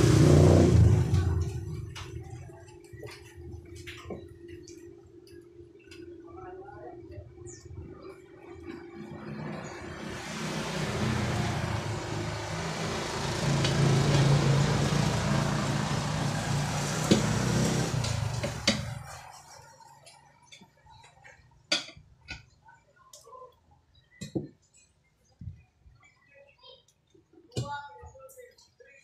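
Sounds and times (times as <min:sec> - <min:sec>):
vehicle passing by: 0:00.0 - 0:02.0, 0:08.9 - 0:19.6.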